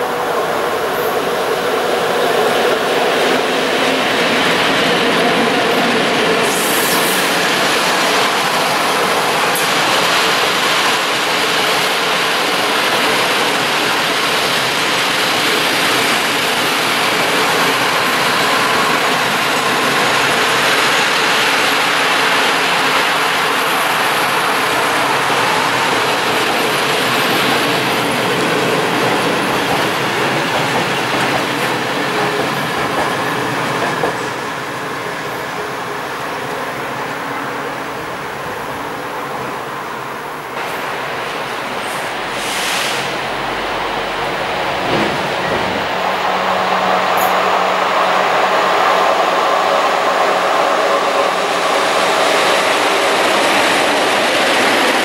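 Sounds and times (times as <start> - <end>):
train wheels rolling on rails: 0.0 - 55.0.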